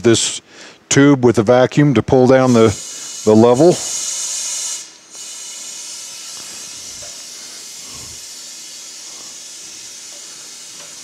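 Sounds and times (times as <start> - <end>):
vacuum tool hissing: 2.7 - 11.0.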